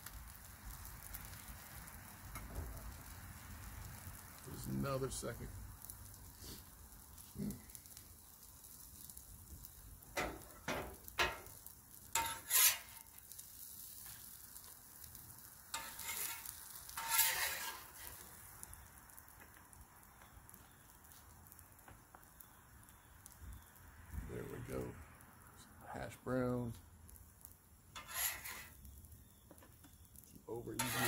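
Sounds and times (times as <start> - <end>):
food sizzling on a griddle: 0.0 - 31.0
metal spatula scraping griddle: 10.2 - 11.5, 12.1 - 14.3, 15.7 - 18.3, 27.9 - 28.8, 30.7 - 31.0.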